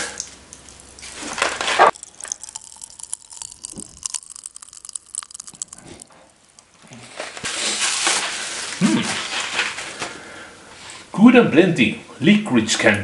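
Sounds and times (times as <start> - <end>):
paper packaging crinkling: 0.6 - 6.1, 7.0 - 10.2.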